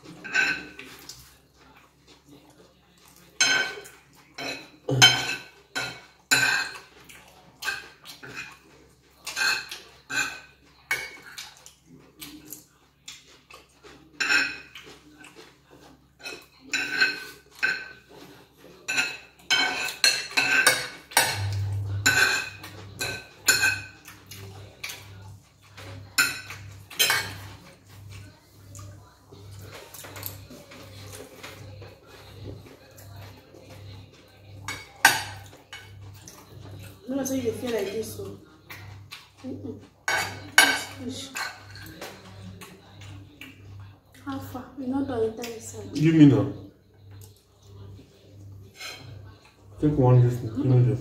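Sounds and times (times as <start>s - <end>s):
cutlery scraping ceramic plates: 0.0s - 1.3s, 3.3s - 11.6s, 13.2s - 28.4s, 40.0s - 42.6s, 48.6s - 49.4s.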